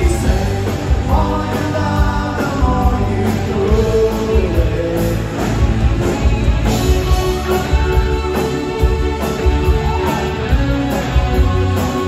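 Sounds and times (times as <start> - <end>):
person singing: 0.0 - 5.6
drums: 0.0 - 12.0
electric guitars: 0.0 - 12.0.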